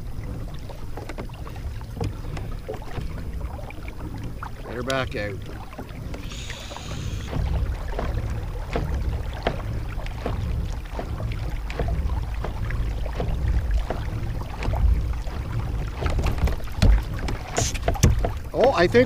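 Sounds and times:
wind rumble on microphone: 0:00.0 - 0:19.0
light ticks and knocks: 0:04.1 - 0:06.3, 0:15.9 - 0:19.0.

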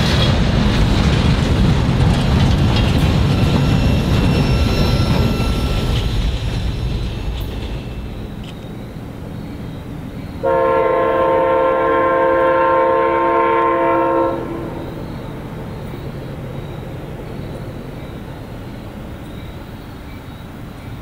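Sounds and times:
low rumble of train: 0:00.0 - 0:21.0
train horn blast: 0:10.4 - 0:15.0.

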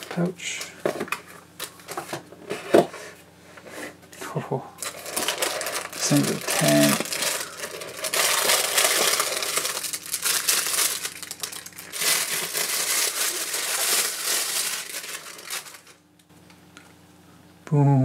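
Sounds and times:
plastic bag crinkling: 0:04.8 - 0:16.0.

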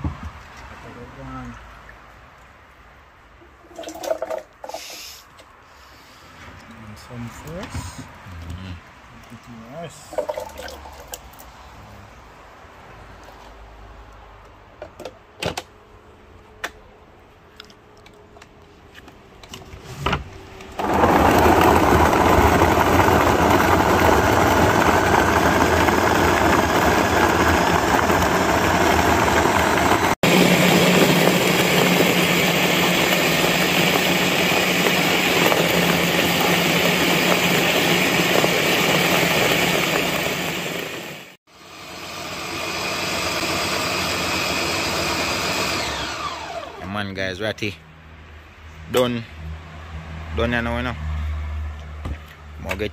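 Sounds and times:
blender motor running: 0:20.8 - 0:46.9.

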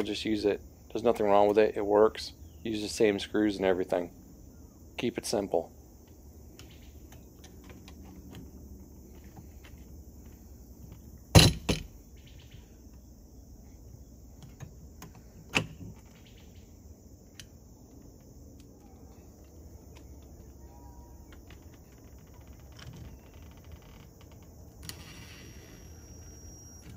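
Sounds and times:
light clicks of latch parts: 0:14.4 - 0:16.2, 0:17.3 - 0:20.6.

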